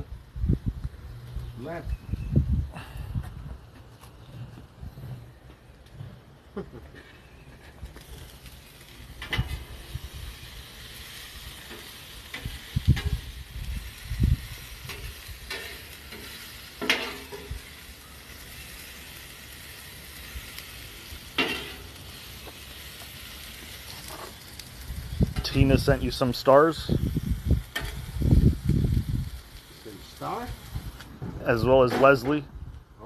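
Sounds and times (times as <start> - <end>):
meat and peppers sizzling on griddle: 7.2 - 32.4
metal utensil scraping griddle: 8.0 - 24.6, 27.6 - 28.2.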